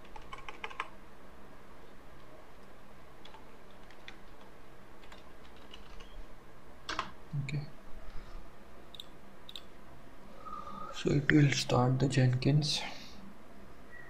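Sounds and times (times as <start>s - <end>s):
computer keyboard typing: 0.0s - 0.9s, 3.2s - 6.2s.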